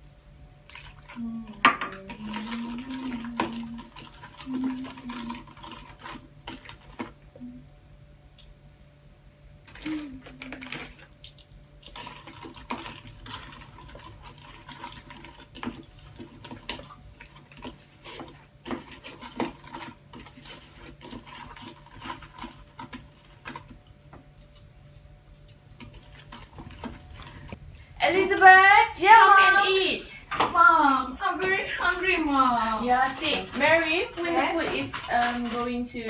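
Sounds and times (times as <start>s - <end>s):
low steady hum: 0.0s - 36.0s
kitchenware clinking: 1.6s - 2.0s, 30.2s - 30.6s
hot water pouring into bowl: 11.8s - 17.7s.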